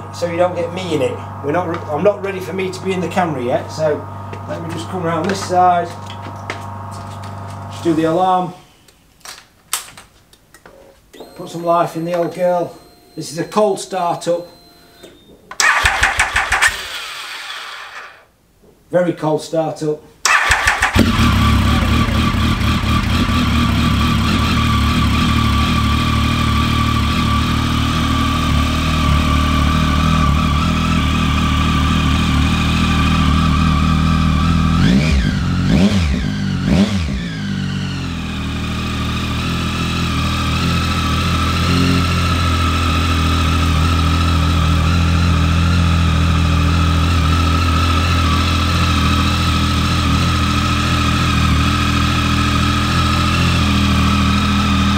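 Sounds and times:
motorcycle engine idling: 20.3 - 36.7.

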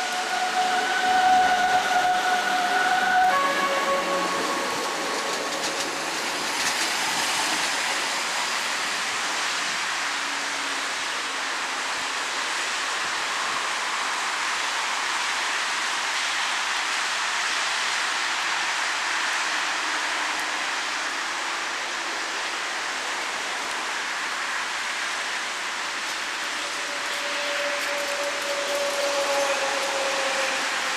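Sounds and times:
train rolling in rain: 0.0 - 30.9.

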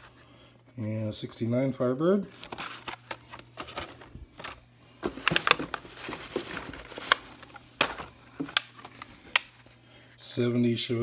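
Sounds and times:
plastic and card rustling: 2.2 - 9.8.

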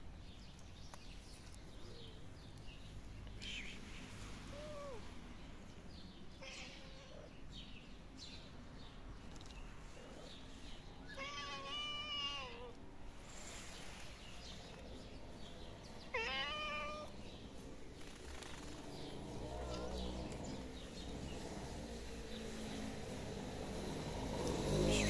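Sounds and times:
kittens meowing: 4.5 - 5.1, 6.4 - 7.3, 11.1 - 12.8, 16.1 - 17.2.

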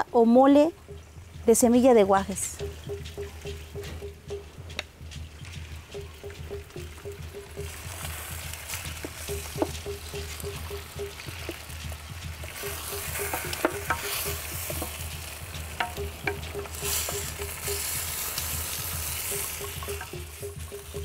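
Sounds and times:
chicken sizzling in lard: 5.6 - 21.0
wooden spoon scraping clay pot: 12.4 - 20.7.

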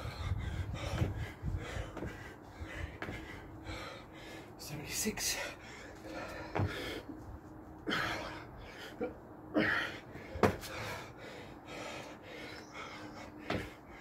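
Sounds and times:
man breathing hard and gasping: 0.0 - 4.6, 5.3 - 7.2, 7.8 - 14.0
hands and feet thumping on paving: 0.8 - 1.3, 1.9 - 2.3, 3.0 - 3.4, 6.3 - 7.0, 10.3 - 10.9, 13.4 - 13.8.

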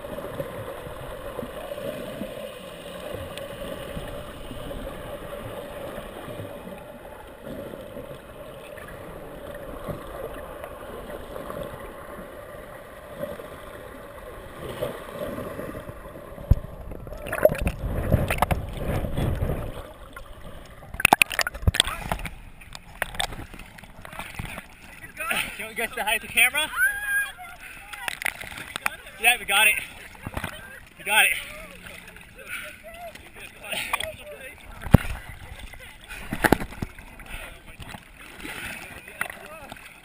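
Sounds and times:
underwater low hum: 0.0 - 40.0
splashing and knocks: 16.4 - 20.3, 20.9 - 24.7, 36.1 - 37.2.

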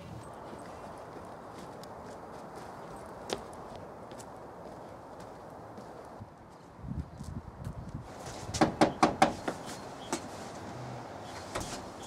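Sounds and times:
knocking on a door: 8.6 - 9.6.

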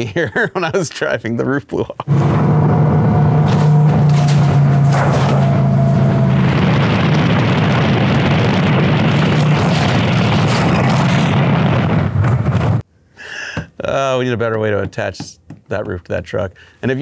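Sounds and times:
low engine drone: 2.1 - 12.8
wind buffeting microphone: 3.3 - 12.6.

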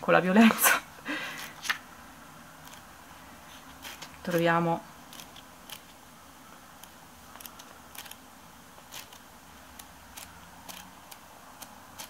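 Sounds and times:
pages turning: 3.5 - 4.4.

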